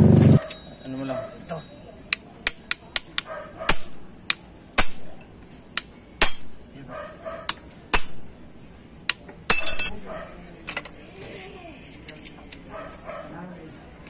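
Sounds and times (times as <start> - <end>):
hammer striking metal punch: 2.4 - 6.6, 7.5 - 8.4, 9.1 - 9.9.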